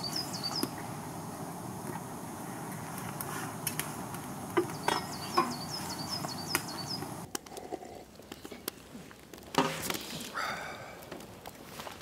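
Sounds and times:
small bird chirping: 0.0 - 0.9, 4.6 - 7.3.

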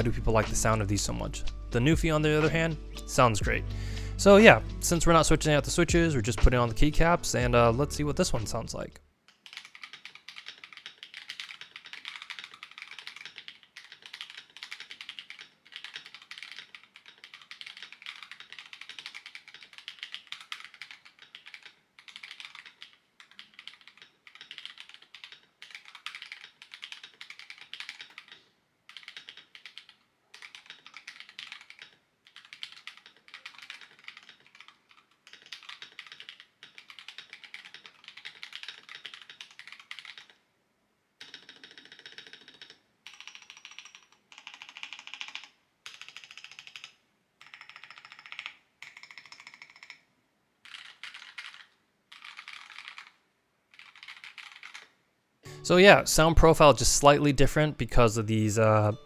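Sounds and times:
mechanical keyboard typing: 9.3 - 40.4, 41.2 - 55.0.

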